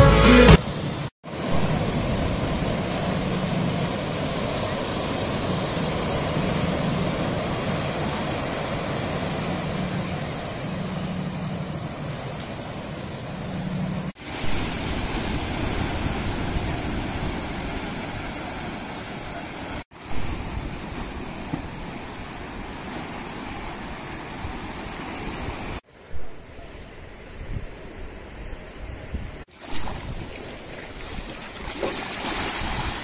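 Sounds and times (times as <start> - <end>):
surf breaking on rocks: 29.5 - 33.0.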